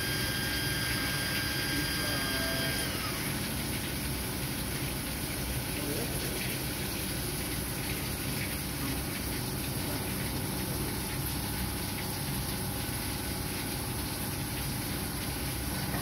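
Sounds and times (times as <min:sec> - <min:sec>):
lathe machine hum: 0:00.0 - 0:03.4
coolant washing over workpiece: 0:00.0 - 0:16.0.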